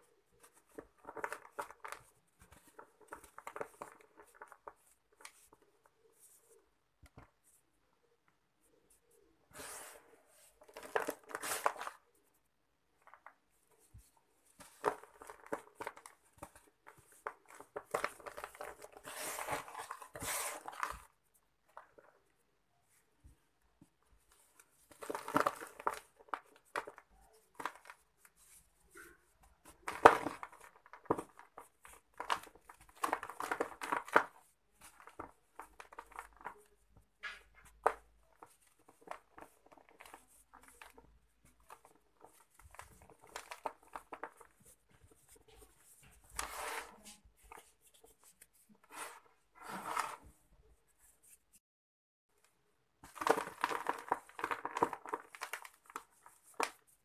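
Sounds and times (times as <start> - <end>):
cement lumps crumbled by hand: 24.9 - 28.0, 29.7 - 45.1, 53.0 - 56.8.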